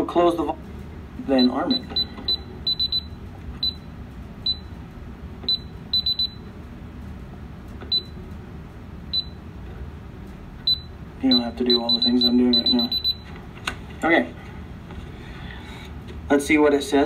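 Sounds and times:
keypad beeps: 1.4 - 4.7, 5.5 - 6.5, 7.9 - 8.2, 10.6 - 13.3.

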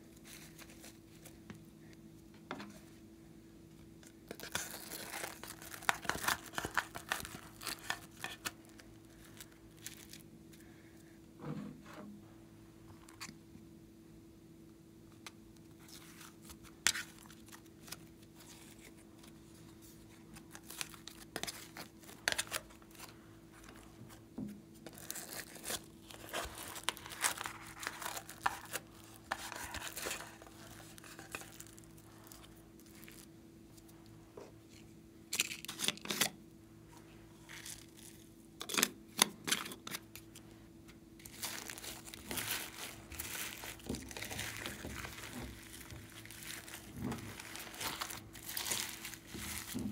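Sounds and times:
foam beads clicking and rustling: 4.3 - 10.2, 24.9 - 33.3, 41.2 - 49.9.

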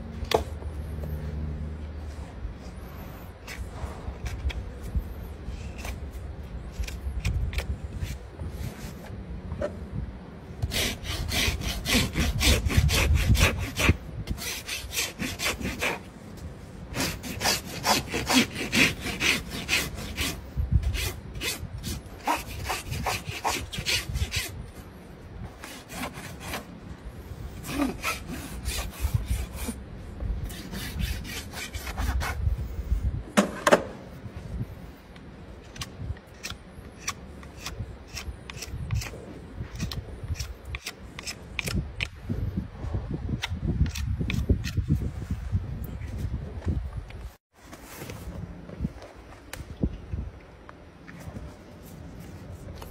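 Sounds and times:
rasp filing hoof: 10.6 - 16.1, 16.9 - 24.6.

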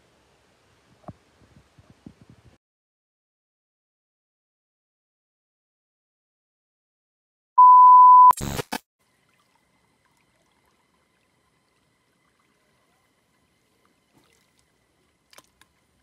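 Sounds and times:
static crackling burst: 8.2 - 8.8.

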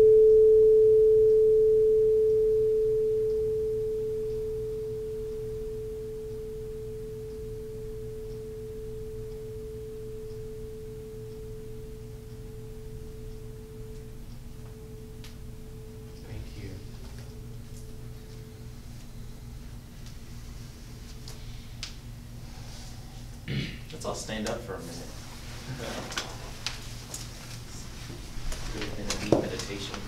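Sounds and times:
singing bowl ringing: 0.0 - 16.1.

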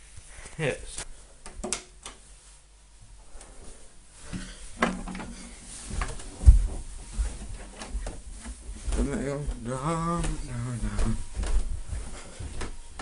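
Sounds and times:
knocks and thumps: 4.3 - 8.6.

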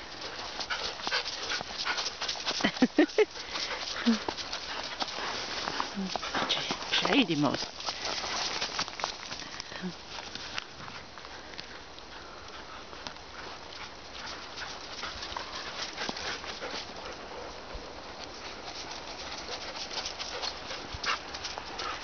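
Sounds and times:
footsteps crunching through snow: 0.0 - 11.1.

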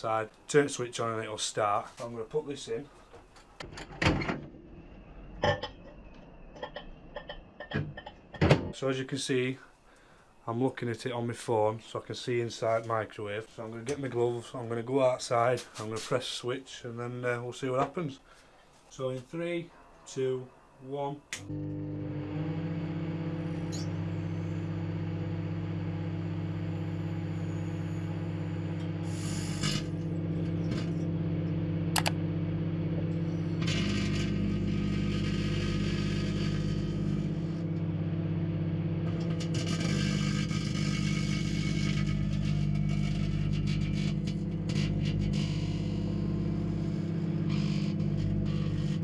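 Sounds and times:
microwave oven humming: 21.4 - 49.0
gas hissing jet: 29.0 - 29.8.

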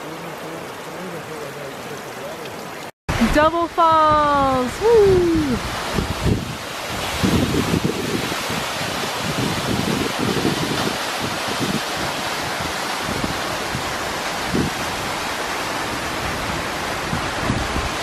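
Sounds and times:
waterfall rushing onto rocks: 0.0 - 18.0
wind buffeting microphone: 3.9 - 18.0.

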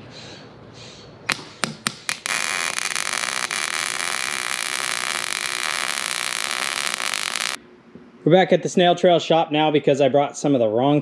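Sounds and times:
welding arc crackling: 1.3 - 7.6.

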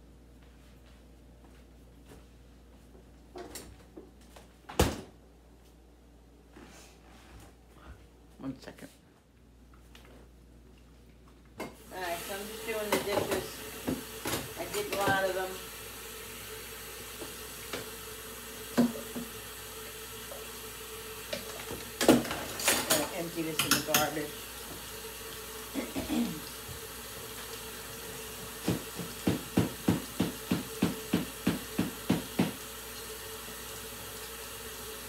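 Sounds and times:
tap running into metal sink: 18.7 - 19.4, 28.2 - 32.6.

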